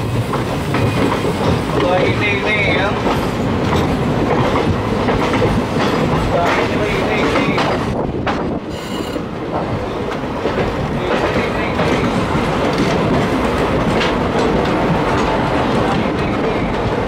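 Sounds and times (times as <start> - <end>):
train rumble: 0.0 - 17.0
train wheels clattering over rail joints: 0.0 - 17.0
high squeal: 8.7 - 9.2.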